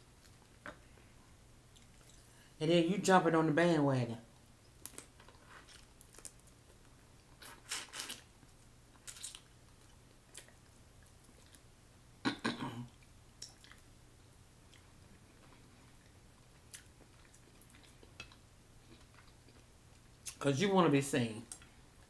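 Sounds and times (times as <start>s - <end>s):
chewing and mouth sounds: 1.7s - 2.3s, 8.9s - 11.7s, 12.9s - 13.9s, 14.6s - 20.4s.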